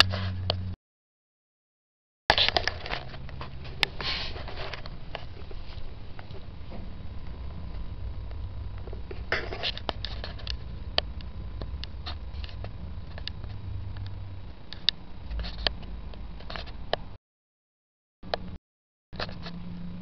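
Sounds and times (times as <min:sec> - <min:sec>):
low steady hum: 0:02.3 - 0:17.2.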